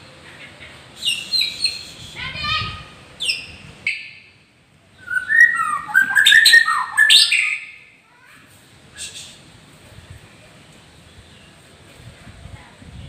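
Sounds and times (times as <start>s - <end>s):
bird singing whistles: 1.0s - 2.2s, 5.0s - 7.8s.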